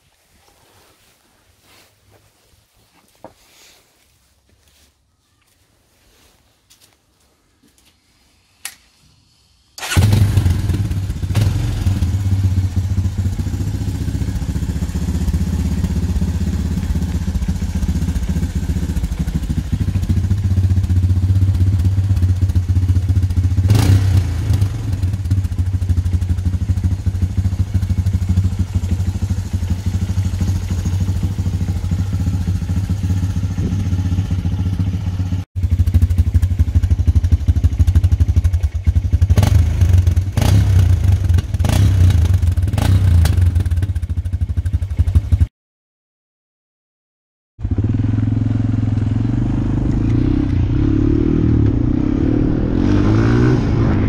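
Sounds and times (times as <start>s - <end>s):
click: 8.6s - 8.9s
quad engine starting and idling: 9.8s - 45.4s, 47.6s - 52.2s.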